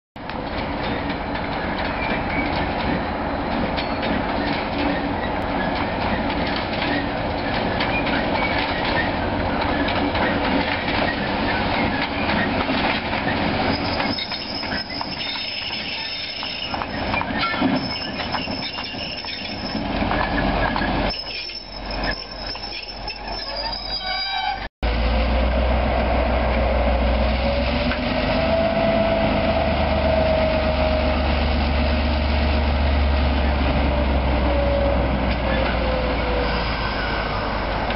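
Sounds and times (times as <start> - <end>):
wheels clicking over rail joints: 0.2 - 24.6
diesel locomotive running: 0.2 - 37.9
high-pitched wheel squeal: 13.7 - 19.9, 21.1 - 24.7, 34.6 - 37.7.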